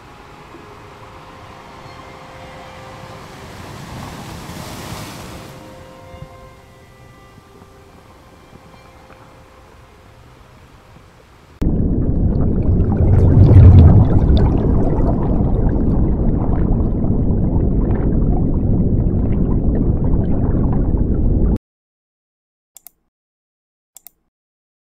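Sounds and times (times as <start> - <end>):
underwater bubbling wash: 11.6 - 21.6.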